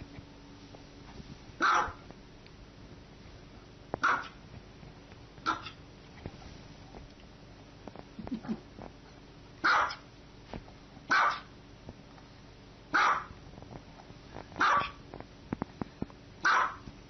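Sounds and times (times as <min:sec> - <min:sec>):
small dog barking: 0:01.6 - 0:02.0, 0:04.0 - 0:04.4, 0:05.4 - 0:05.8, 0:09.6 - 0:10.1, 0:11.1 - 0:11.5, 0:12.9 - 0:13.4, 0:14.6 - 0:15.0, 0:16.4 - 0:16.9.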